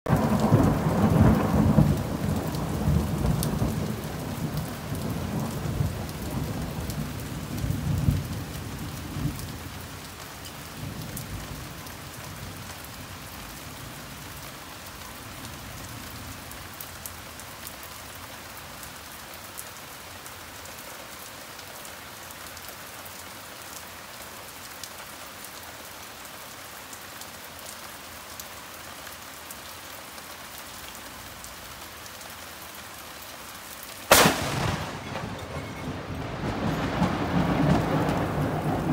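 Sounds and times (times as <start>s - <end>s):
thunder rumbling: 0.1s - 9.9s, 34.1s - 38.9s
heavy rain falling: 0.1s - 38.9s.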